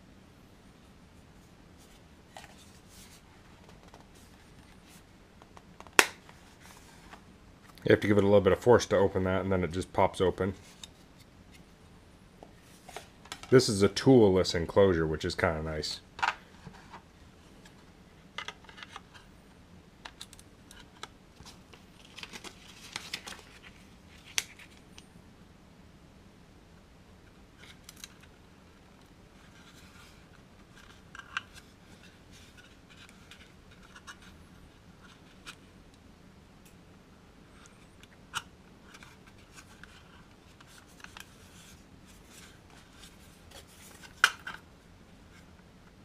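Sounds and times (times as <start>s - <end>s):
soft rustling: 0.8s - 5.2s, 6.2s - 7.8s
soft scrapes: 1.3s - 5.1s, 6.3s - 7.2s.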